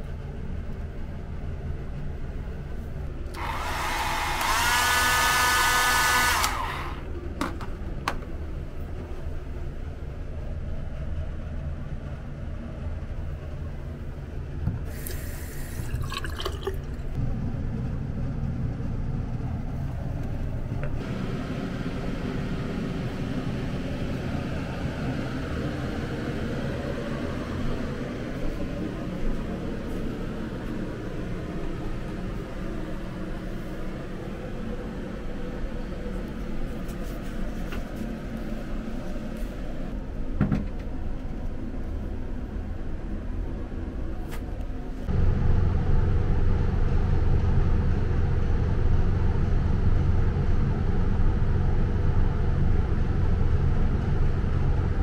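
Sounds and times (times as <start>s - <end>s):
water running from tap: 15.8s - 17.0s.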